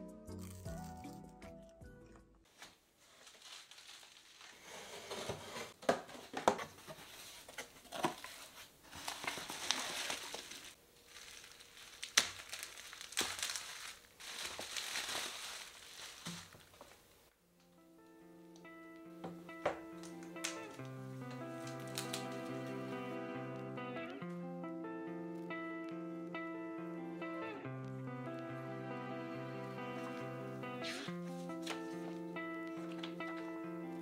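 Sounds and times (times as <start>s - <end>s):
bubble wrap crinkling: 2.5s - 4.7s, 7.1s - 17.3s, 20.0s - 23.0s
cardboard rustling: 2.5s - 17.2s
packaging clicks and snaps: 20.0s - 22.6s.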